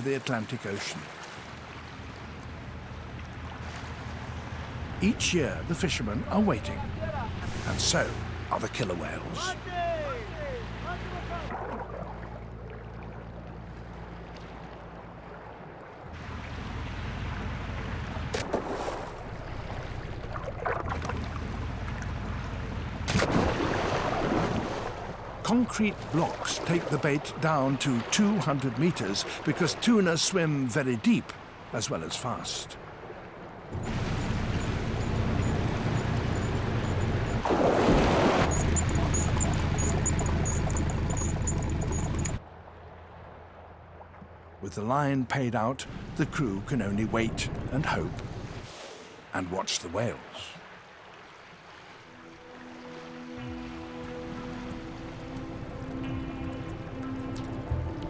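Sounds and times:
water wash: 0:00.0 - 0:44.9
boat engine hum: 0:00.0 - 0:58.0
wind: 0:00.0 - 0:58.0
splash into water: 0:11.4 - 0:13.2, 0:16.2 - 0:21.6, 0:23.0 - 0:25.2, 0:37.4 - 0:38.6
fishing line ticking: 0:38.5 - 0:42.4.

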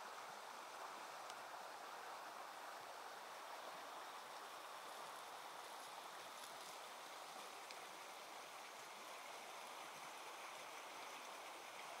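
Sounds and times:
faint outdoor rushing hiss: 0:00.0 - 0:12.0.

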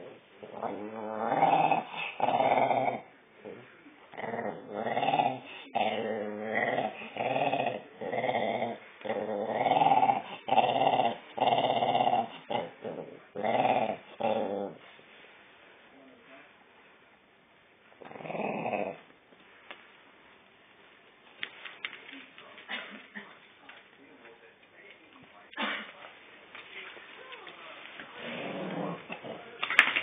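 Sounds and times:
small dog growling: 0:00.4 - 0:14.8, 0:18.0 - 0:19.1, 0:28.1 - 0:29.5.

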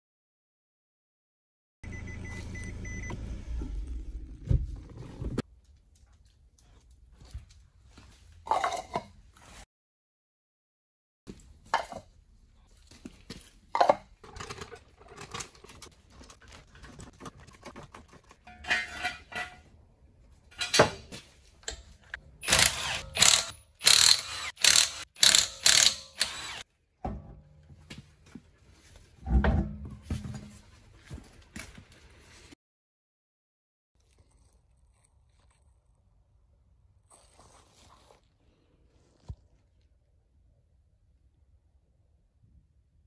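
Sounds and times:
trolley jack ratcheting: 0:22.4 - 0:26.6.

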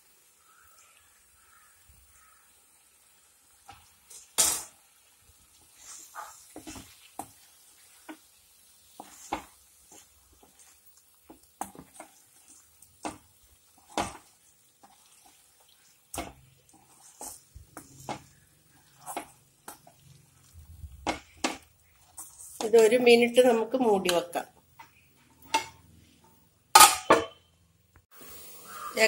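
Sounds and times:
faint sizzle: 0:00.0 - 0:29.0
wooden spatula scraping pan: 0:05.6 - 0:08.3, 0:08.9 - 0:23.1.

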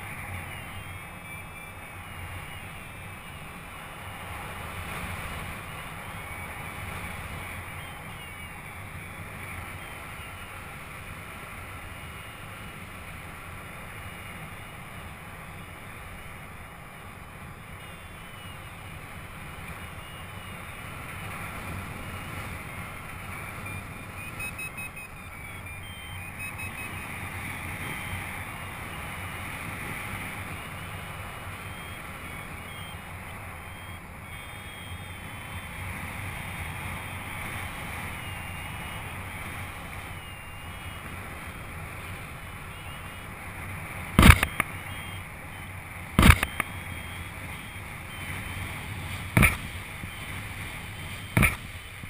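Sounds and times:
sharp knocks: 0:49.4 - 0:49.7, 0:51.4 - 0:51.7.

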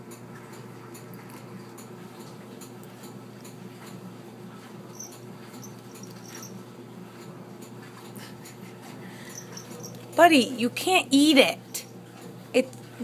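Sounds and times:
steady low hum: 0:00.0 - 0:13.0
cat scratching towel: 0:04.5 - 0:06.6, 0:08.5 - 0:10.2.

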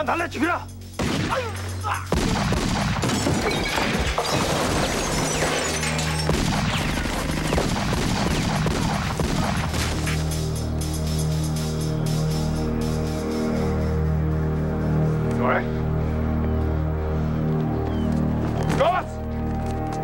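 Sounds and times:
dramatic background music: 0:00.0 - 0:20.0
rapid handgun gunfire: 0:02.1 - 0:05.0, 0:06.3 - 0:10.1.

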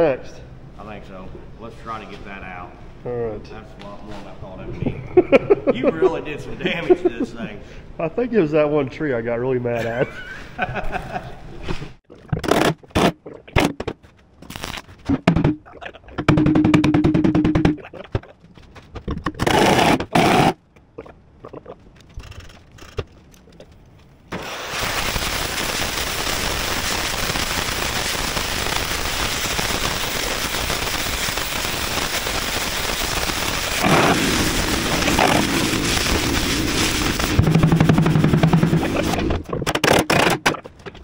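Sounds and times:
torch flame hissing: 0:24.3 - 0:39.2.

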